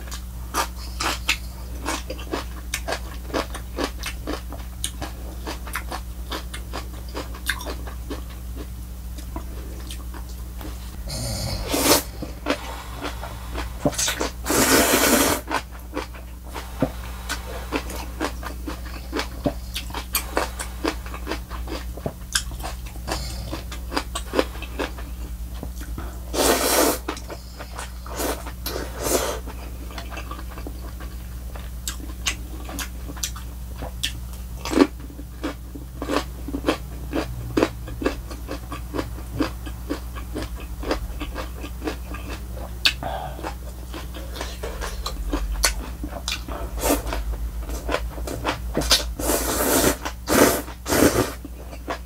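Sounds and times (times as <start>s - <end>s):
crunchy wet chewing: 0.0s - 11.0s, 11.6s - 52.0s
noodle slurps: 11.2s - 15.6s, 26.4s - 27.2s, 49.2s - 51.4s.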